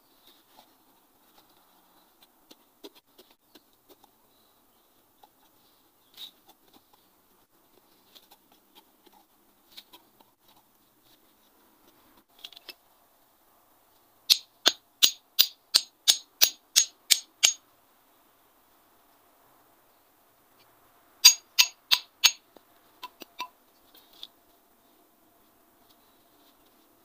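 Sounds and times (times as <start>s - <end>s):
hammer striking metal rod: 14.3s - 17.6s, 21.2s - 22.4s.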